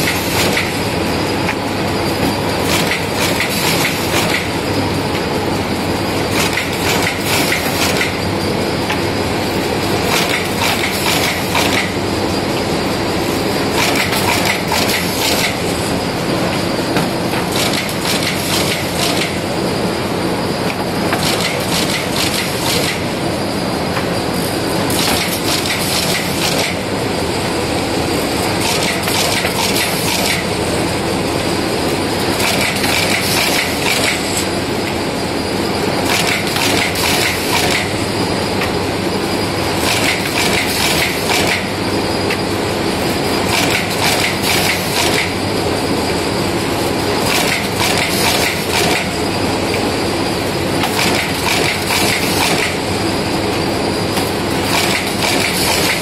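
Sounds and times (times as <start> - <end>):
machine mechanical clatter: 0.0 - 5.3, 6.2 - 8.2, 9.8 - 12.0, 13.6 - 15.8, 16.5 - 19.5, 20.6 - 23.2, 24.8 - 27.6, 28.3 - 30.6, 32.0 - 34.6, 36.0 - 38.9, 39.5 - 42.5, 43.3 - 45.4, 46.9 - 49.9, 50.7 - 56.0.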